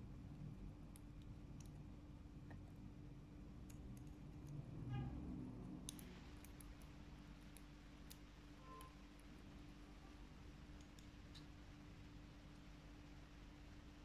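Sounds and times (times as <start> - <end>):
low steady hum: 0.0 - 14.0
metal tweezers clicking: 5.8 - 8.2.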